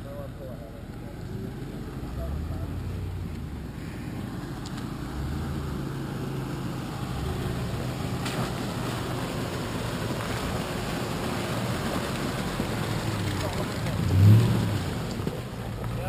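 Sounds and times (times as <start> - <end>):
pickup truck engine droning: 0.0 - 16.0.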